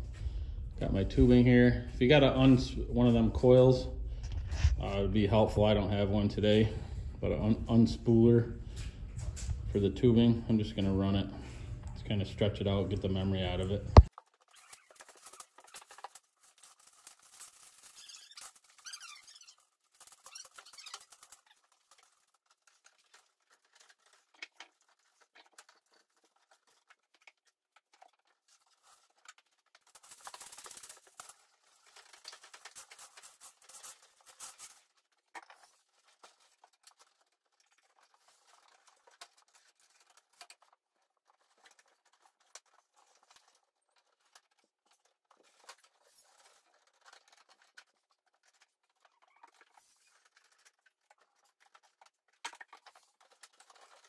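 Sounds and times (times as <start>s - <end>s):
plastic tubing scraping and rubbing: 4.2s - 5.0s, 13.0s - 54.0s.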